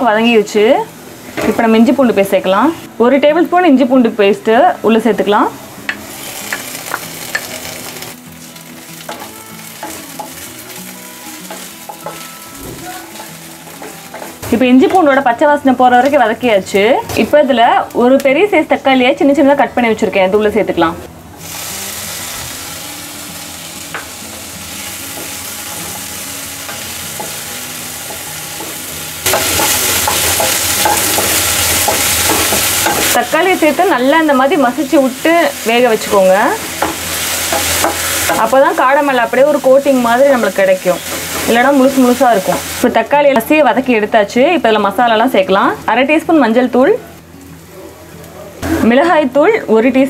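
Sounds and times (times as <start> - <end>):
onions sizzling in oil: 0.0 - 20.1, 21.4 - 50.0
spatula scraping and tapping pan: 11.4 - 15.1, 28.2 - 33.2.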